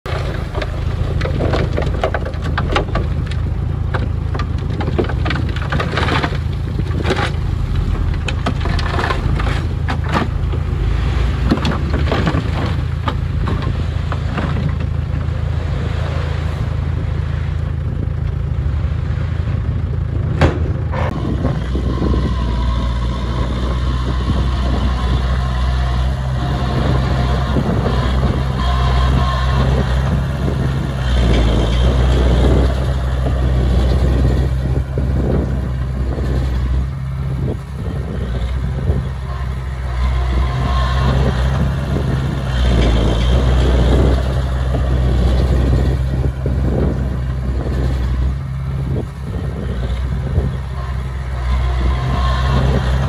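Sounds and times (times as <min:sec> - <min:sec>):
diesel engines running: 0:00.0 - 0:53.0
soil and rocks clattering: 0:00.1 - 0:15.5.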